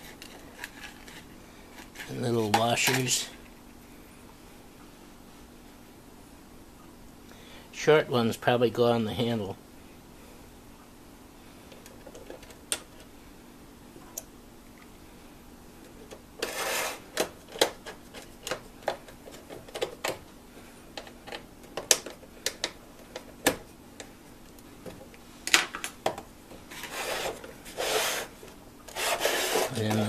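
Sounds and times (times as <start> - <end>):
short scraping rubs: 16.4 - 17.1, 26.7 - 29.9.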